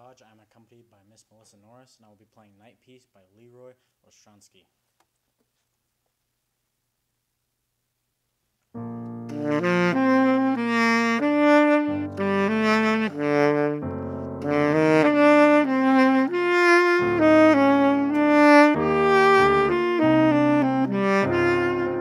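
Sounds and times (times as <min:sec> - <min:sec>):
piano chords: 0:08.8 - 0:22.0
tenor saxophone melody: 0:08.8 - 0:22.0.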